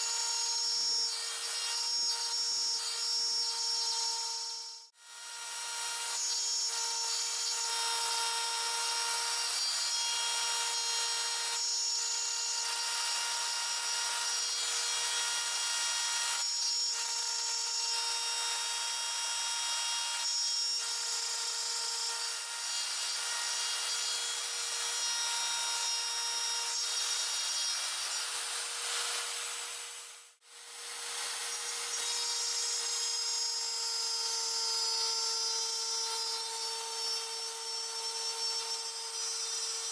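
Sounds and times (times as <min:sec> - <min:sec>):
router bit grinding wood: 0:00.0 - 0:39.9
wood router whining: 0:00.0 - 0:39.9.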